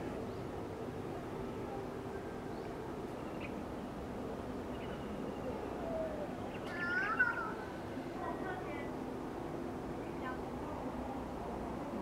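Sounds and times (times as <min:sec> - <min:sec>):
low background hum: 0:00.0 - 0:12.0
faint bird chirps: 0:04.6 - 0:07.8.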